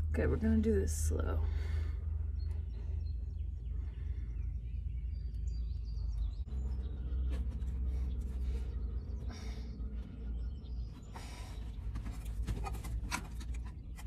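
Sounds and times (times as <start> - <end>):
bird chirps: 2.2 - 12.6.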